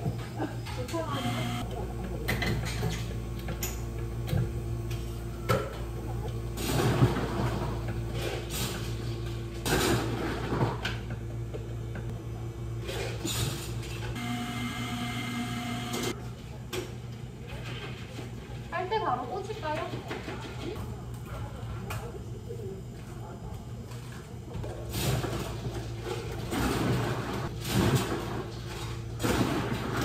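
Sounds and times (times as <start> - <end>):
equipment humming: 0.0 - 30.0
machine whine: 0.1 - 1.6, 13.2 - 16.2.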